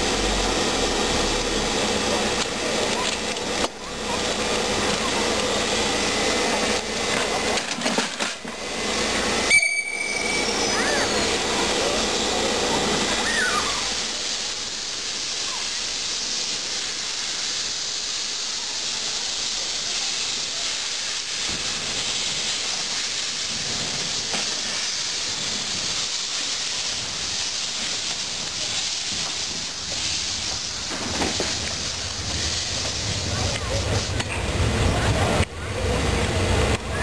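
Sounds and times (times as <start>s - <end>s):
steam hissing: 0.0s - 37.0s
steam locomotive rolling past: 0.0s - 37.0s.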